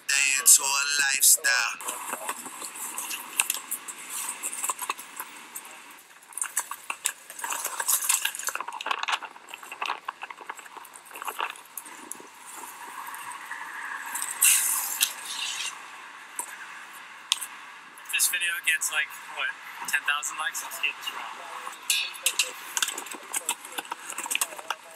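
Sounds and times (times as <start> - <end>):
skateboard clicks and clacks: 2.1 - 5.7, 6.3 - 12.2.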